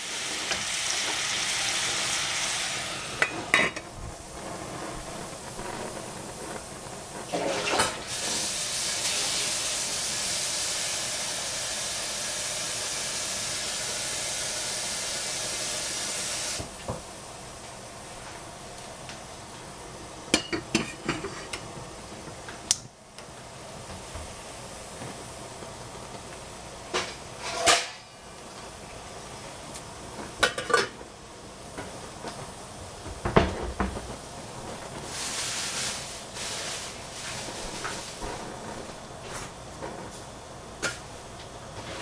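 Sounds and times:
gas burners hissing: 0.0 - 42.0
metal pots and lids clattering: 3.2 - 3.9, 20.3 - 21.6, 30.4 - 31.0.

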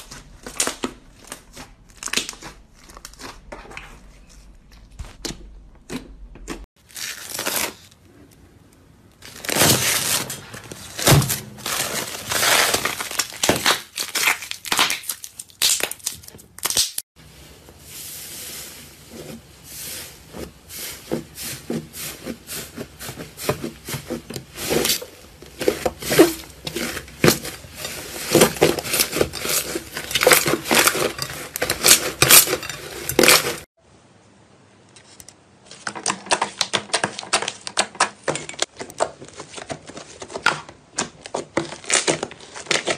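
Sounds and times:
slime crackling and popping: 11.6 - 17.0.

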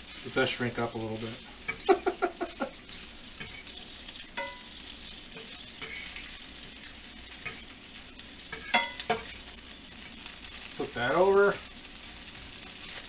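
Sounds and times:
bacon sizzling in a frying pan: 0.0 - 13.0
metal fork clinking on pan: 4.4 - 4.7, 5.4 - 6.1, 7.4 - 7.7, 8.5 - 9.4.

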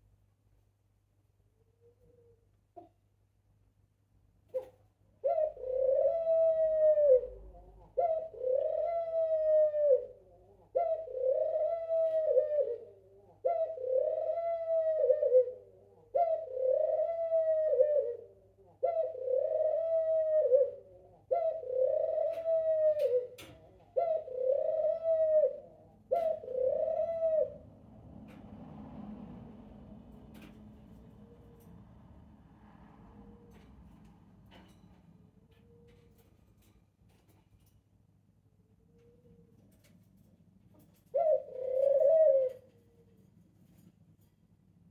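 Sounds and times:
dove cooing: 4.5 - 28.4, 30.3 - 31.9, 40.8 - 43.9.

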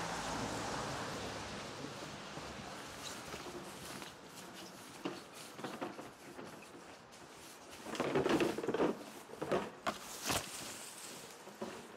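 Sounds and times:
rustling and scraping: 2.8 - 11.9.

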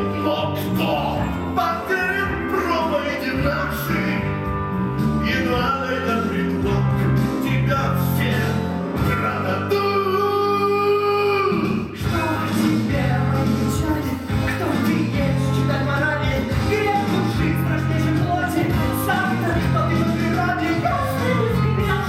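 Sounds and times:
rock band playing: 0.0 - 22.0
person singing: 5.2 - 22.0.

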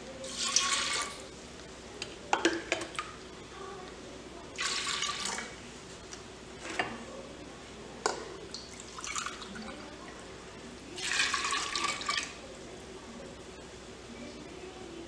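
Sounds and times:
water pouring into a pot: 0.2 - 1.2, 4.6 - 5.6, 8.5 - 10.0, 11.0 - 12.4.

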